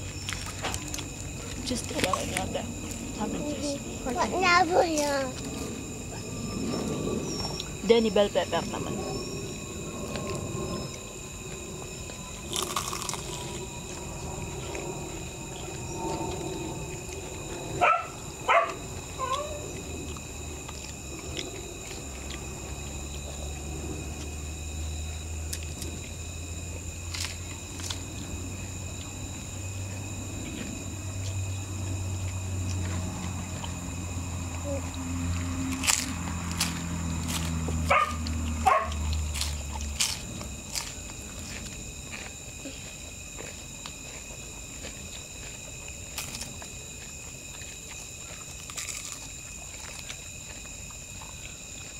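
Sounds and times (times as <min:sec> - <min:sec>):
crunching of crispy food being bitten: 0:00.0 - 0:03.1, 0:09.8 - 0:51.9
low steady hum: 0:00.0 - 0:51.9
dog barking: 0:17.8 - 0:19.6, 0:37.9 - 0:39.1
dog yelping: 0:17.8 - 0:19.6, 0:37.9 - 0:39.0.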